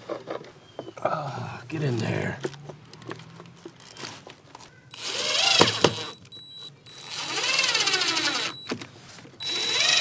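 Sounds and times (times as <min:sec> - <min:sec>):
cordless drill motor whine: 0:04.9 - 0:06.2, 0:06.9 - 0:08.8, 0:09.4 - 0:10.0.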